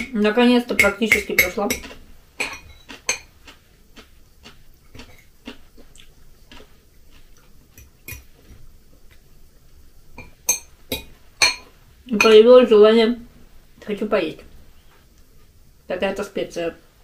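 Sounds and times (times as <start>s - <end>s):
fork scraping on glass plate: 1.1s - 3.3s.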